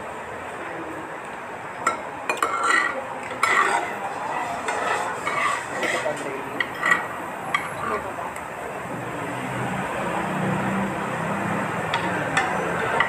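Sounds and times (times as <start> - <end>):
cutlery clinking on plates: 1.8 - 8.0, 11.9 - 13.0.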